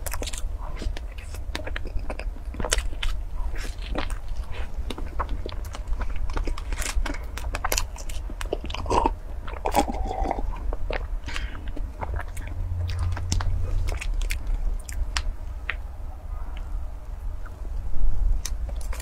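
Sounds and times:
chewing soft pastry: 0:00.0 - 0:19.0
swallowing gulps: 0:08.5 - 0:14.0.

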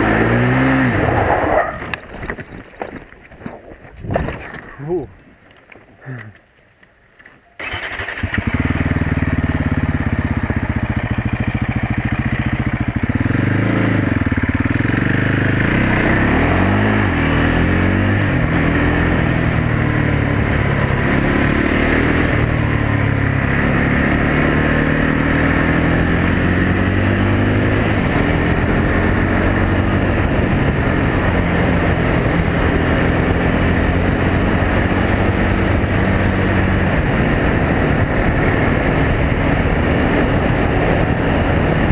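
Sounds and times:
quad engine revving: 0:00.0 - 0:02.0, 0:07.6 - 0:41.9.

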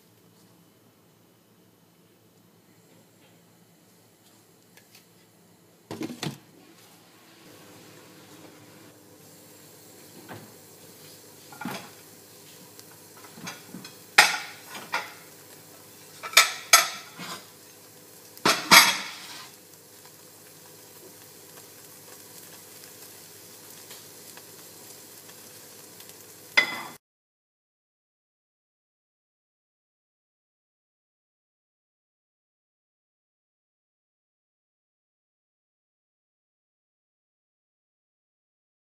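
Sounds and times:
omelette sizzling in a pan: 0:06.6 - 0:27.0
utensil scraping a pan: 0:16.2 - 0:17.5, 0:18.5 - 0:19.6.

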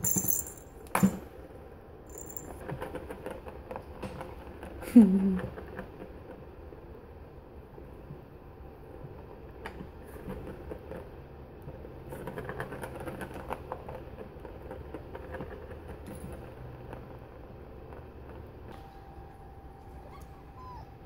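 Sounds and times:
plastic ball rolling on track: 0:11.7 - 0:18.7.

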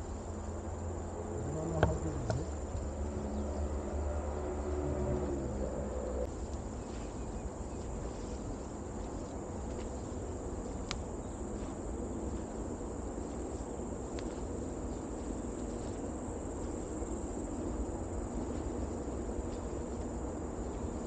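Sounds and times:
high-pitched insect drone: 0:00.0 - 0:09.3
low rustling noise: 0:00.0 - 0:21.0.

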